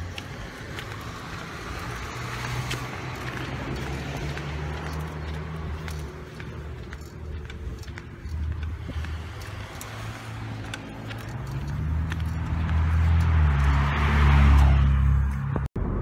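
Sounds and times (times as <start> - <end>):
car driving past: 8.8 - 15.6.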